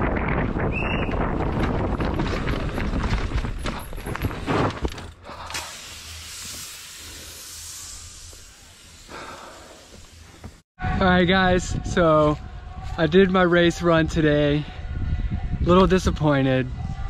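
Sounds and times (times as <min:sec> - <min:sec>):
wind rushing over microphone: 0:00.0 - 0:04.5, 0:10.8 - 0:17.0
mountain bike rattling over rocks: 0:01.2 - 0:05.2.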